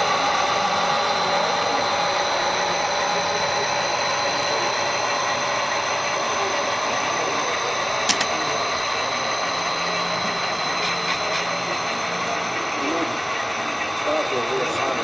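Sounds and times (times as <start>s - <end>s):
model train running with whine: 0.0s - 15.0s
sharp click: 8.1s - 8.4s.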